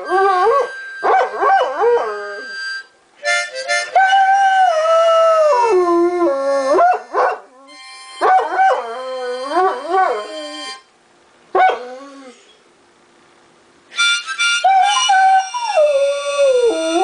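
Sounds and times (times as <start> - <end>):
harmonica chords: 0.0 - 5.6, 7.6 - 10.9, 13.9 - 17.0
dog howling: 14.6 - 17.0.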